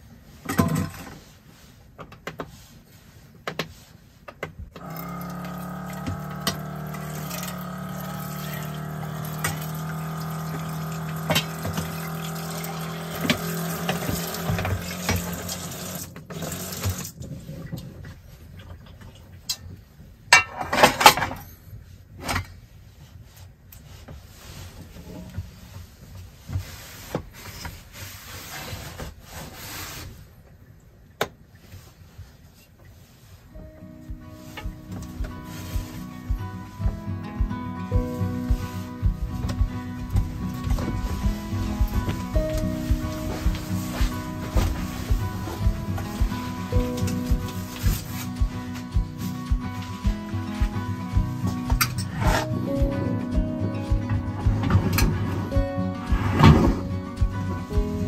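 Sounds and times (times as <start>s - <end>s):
steady hum: 4.8s - 16.0s, 33.6s - 52.0s
tap water running into sink: 4.8s - 17.1s
soft rubbing: 31.7s - 37.1s, 37.9s - 51.7s.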